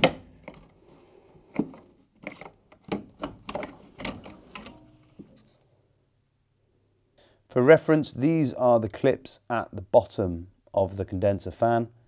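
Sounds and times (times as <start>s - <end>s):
plastic clicks knocks and rattles: 0.0s - 0.7s, 1.5s - 4.9s.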